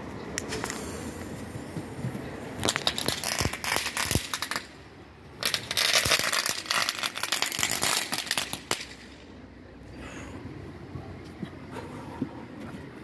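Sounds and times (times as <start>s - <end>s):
firework crackling: 0.4s - 9.4s.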